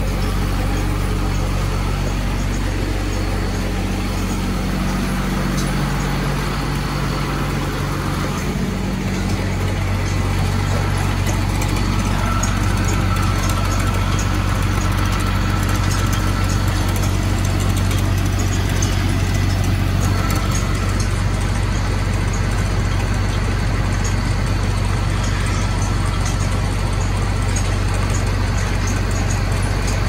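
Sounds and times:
machinery humming: 0:00.0 - 0:30.0.

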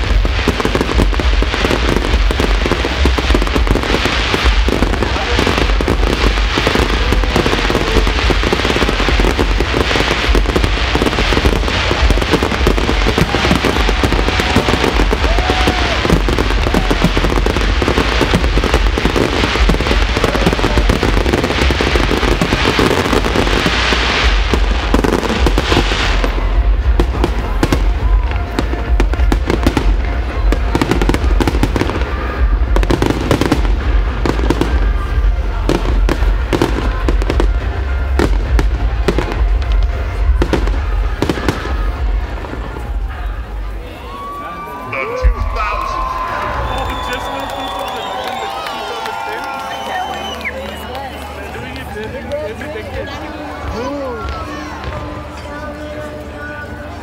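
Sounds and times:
fireworks crackling and banging: 0:00.0 - 0:57.0.

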